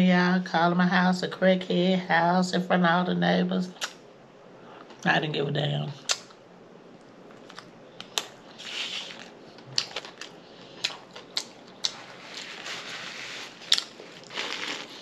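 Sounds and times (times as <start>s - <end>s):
crunchy chips chewing: 7.4s - 15.0s.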